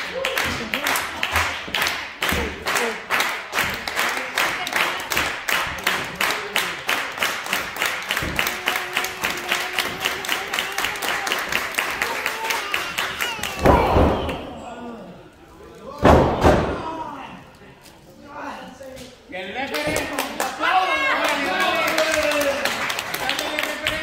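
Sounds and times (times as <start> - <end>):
crowd clapping in rhythm: 0.0 - 13.8, 19.7 - 24.0.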